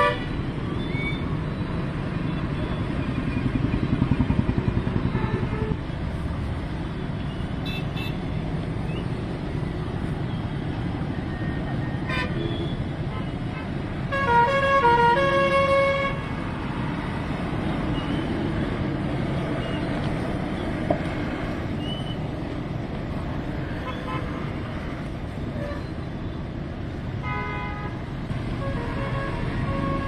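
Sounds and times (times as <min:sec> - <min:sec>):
vehicle horn: 0:00.0 - 0:00.3, 0:07.6 - 0:08.2, 0:12.1 - 0:16.3, 0:27.2 - 0:28.0, 0:28.6 - 0:30.0
road traffic rumble: 0:00.0 - 0:30.0.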